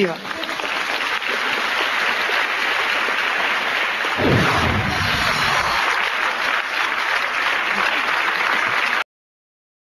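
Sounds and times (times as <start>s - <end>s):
audience applauding: 0.0s - 9.1s
deep falling boom: 4.2s - 5.9s.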